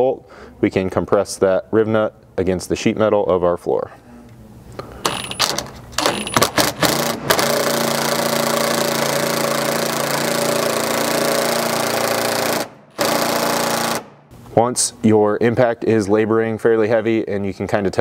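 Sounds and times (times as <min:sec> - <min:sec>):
cordless impact wrench running: 0:05.0 - 0:14.3.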